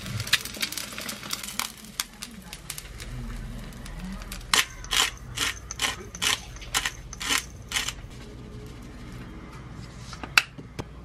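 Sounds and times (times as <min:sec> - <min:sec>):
pepper grinder grinding: 0:03.8 - 0:08.1.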